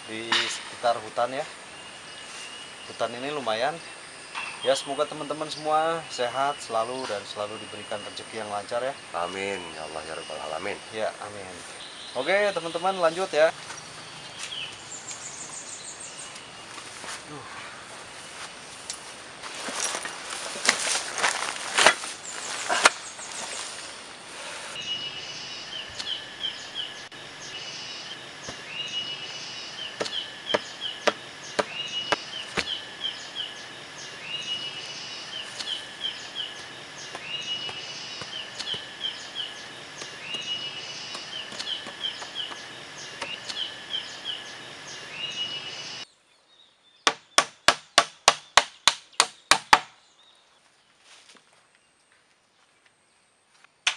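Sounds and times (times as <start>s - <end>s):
hammer striking bamboo frame: 30.0s - 32.7s, 47.0s - 50.0s
scattered knocks: 30.0s - 32.7s.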